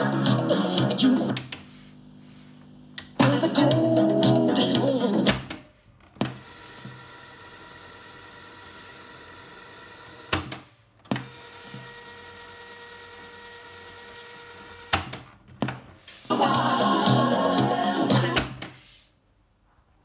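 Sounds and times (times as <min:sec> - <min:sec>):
music playback: 0:00.0 - 0:01.5, 0:03.1 - 0:05.5, 0:16.3 - 0:18.6
cassette mechanism whirring: 0:00.0 - 0:18.8.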